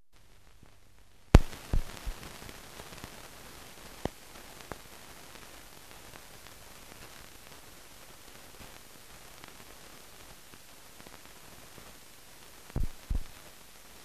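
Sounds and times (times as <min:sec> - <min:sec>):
film surface hiss: 0:00.1 - 0:14.0
film pops and clicks: 0:01.3 - 0:02.3, 0:12.7 - 0:13.4.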